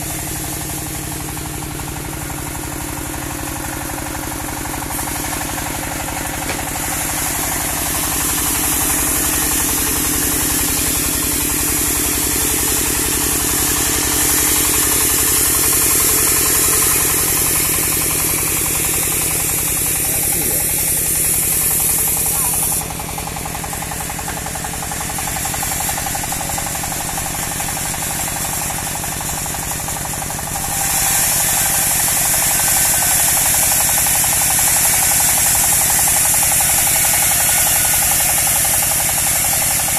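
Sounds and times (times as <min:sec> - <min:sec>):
bandsaw sawmill engine: 0:00.0 - 0:39.9
loud high hiss: 0:04.9 - 0:22.9.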